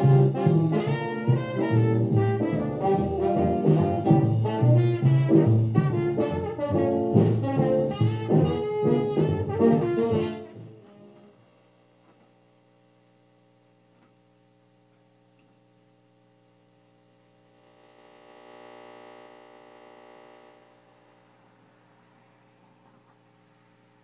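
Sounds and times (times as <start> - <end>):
swing jazz on radio: 0.0 - 12.6
faint steady hum: 0.0 - 24.0
radio static hiss: 16.5 - 24.0.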